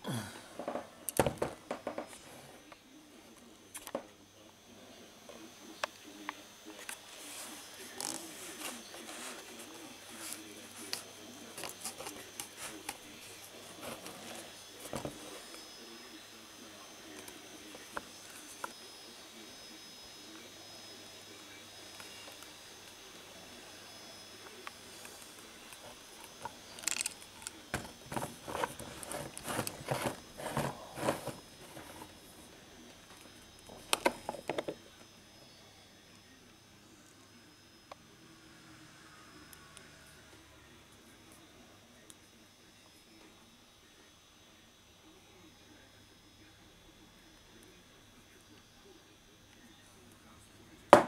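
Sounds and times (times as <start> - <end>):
object handling clicks and knocks: 25.8 - 32.1.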